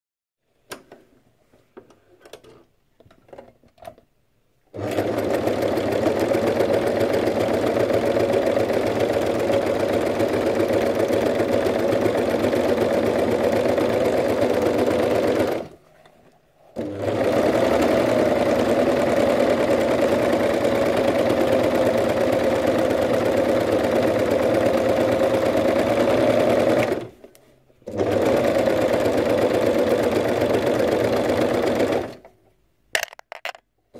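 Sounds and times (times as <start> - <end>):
serger sewing machine running: 4.8 - 15.7, 16.8 - 27.1, 27.9 - 32.2.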